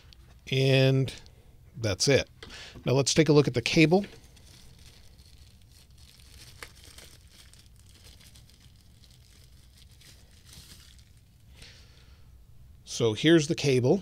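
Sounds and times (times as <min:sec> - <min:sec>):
packaging pouch crinkling: 0:04.2 - 0:11.5.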